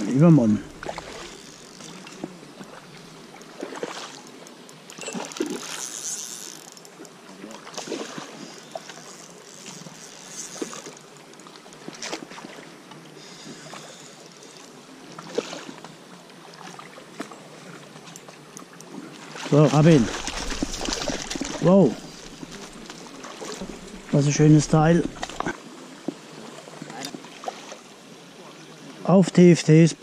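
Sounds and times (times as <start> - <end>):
fish splashing at water surface: 0.7 - 2.9, 19.2 - 24.2.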